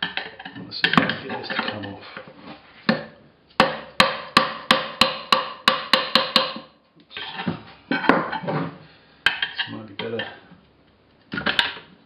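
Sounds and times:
hammer striking metal: 3.6 - 6.7.

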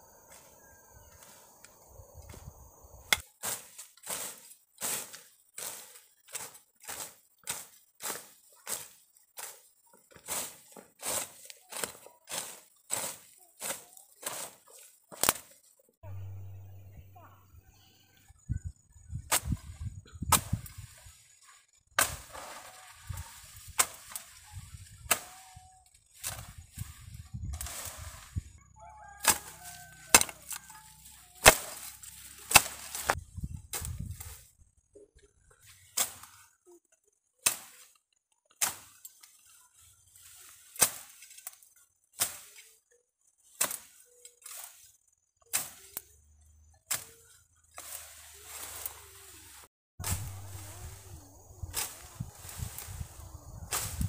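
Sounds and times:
hand tool chopping: 3.1 - 15.6, 29.2 - 33.2.

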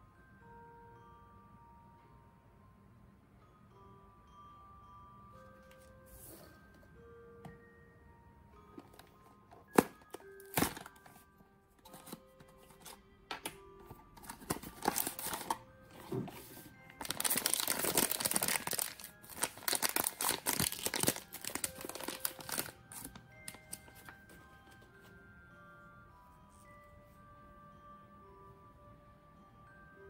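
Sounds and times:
soft background music: 0.0 - 30.0
plastic pouch crinkling and tearing: 14.6 - 15.5, 17.0 - 23.8.

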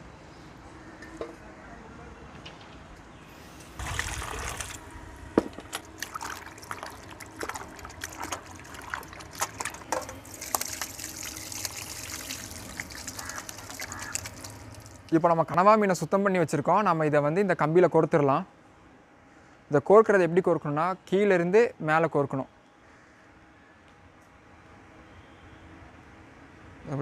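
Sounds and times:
water splashing onto concrete: 3.8 - 4.8, 5.7 - 15.2
water sloshing in a bowl: 3.8 - 4.9, 5.6 - 15.2.

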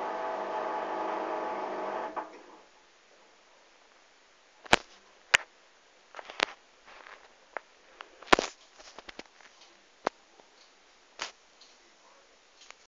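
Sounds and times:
washing machine tumbling clothes: 0.0 - 2.6.

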